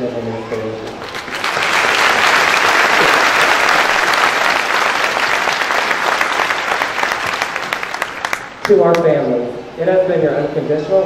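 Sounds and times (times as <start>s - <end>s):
audience applauding: 0.8s - 9.1s.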